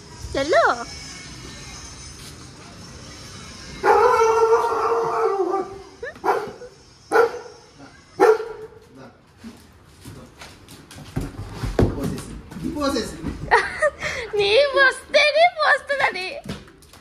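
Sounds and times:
dog howling: 0:03.8 - 0:06.0
dog barking: 0:03.8 - 0:07.6, 0:08.2 - 0:08.8.

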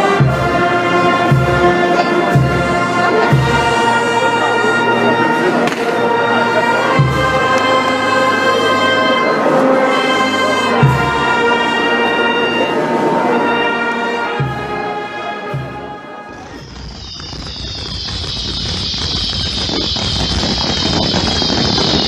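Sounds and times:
brass band playing slow music: 0:00.0 - 0:22.0
deep bass notes: 0:16.3 - 0:22.0.

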